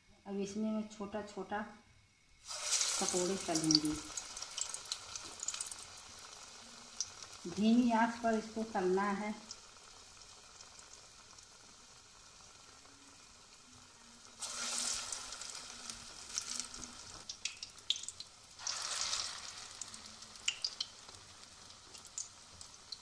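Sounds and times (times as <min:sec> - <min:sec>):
food deep-frying in oil: 0:02.4 - 0:23.0
oil popping: 0:16.4 - 0:19.4, 0:20.4 - 0:21.2.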